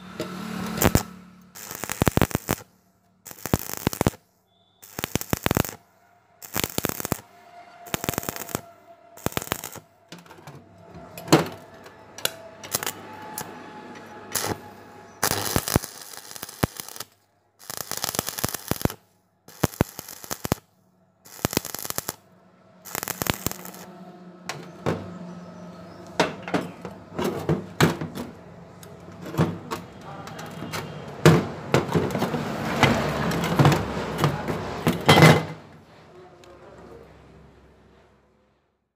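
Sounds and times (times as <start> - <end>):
welding arc crackling: 0.2 - 5.8, 6.4 - 10.0, 12.2 - 13.6, 14.3 - 20.7, 21.3 - 23.9.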